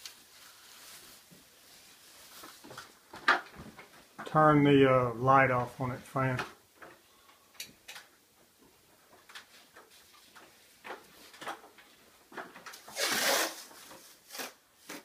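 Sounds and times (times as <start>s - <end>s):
plastic sheeting rustling: 0.0s - 4.1s, 9.4s - 15.0s.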